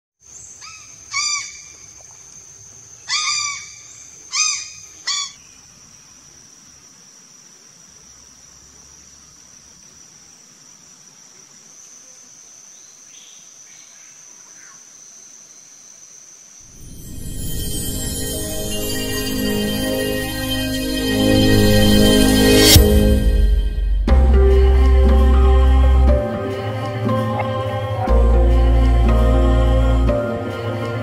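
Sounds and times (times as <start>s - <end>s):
crow calling: 3.1s - 5.5s
steady high-pitched whine: 16.7s - 26.0s.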